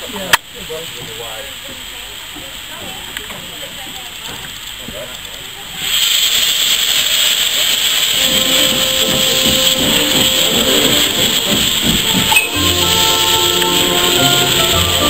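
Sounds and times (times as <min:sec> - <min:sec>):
steam hissing: 0:00.0 - 0:15.0
music with held notes: 0:08.2 - 0:15.0.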